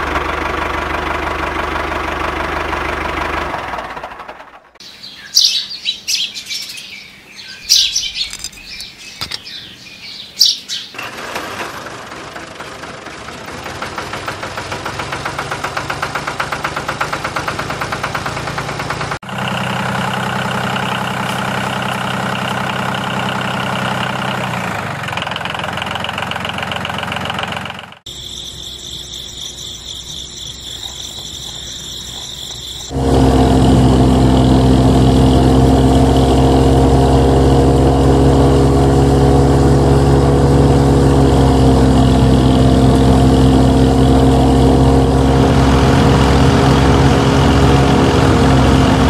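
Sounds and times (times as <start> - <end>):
birds chirping: 4.8 - 11.0, 28.1 - 33.0.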